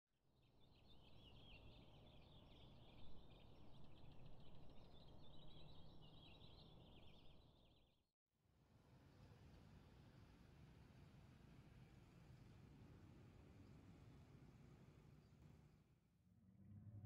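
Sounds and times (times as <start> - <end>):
low steady rumble: 16.3 - 17.0.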